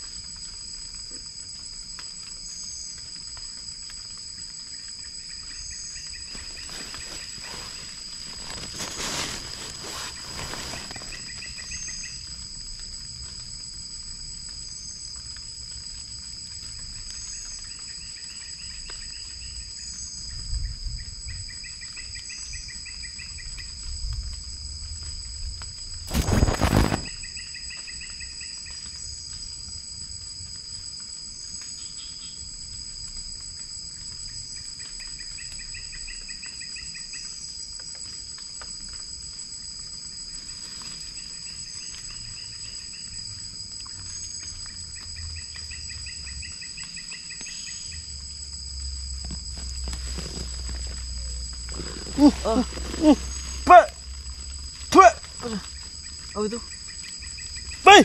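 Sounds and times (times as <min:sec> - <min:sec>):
insect drone: 0:00.0 - 0:58.0
pulsed insect trill: 0:00.0 - 0:58.0.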